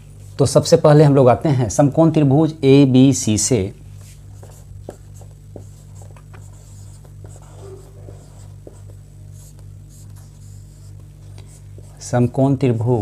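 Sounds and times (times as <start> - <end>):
steady low hum: 0.0 - 13.0
marker scratching on whiteboard: 4.0 - 13.0.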